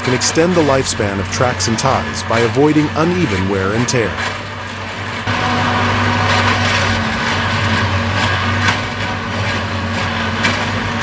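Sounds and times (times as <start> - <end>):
engine and hydraulics humming: 0.0 - 11.0.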